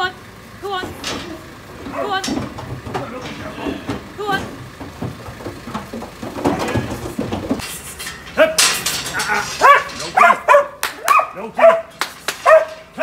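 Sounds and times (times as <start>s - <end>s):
hooves clattering on metal ramp: 0.6s - 13.0s
dog barking: 9.6s - 12.9s.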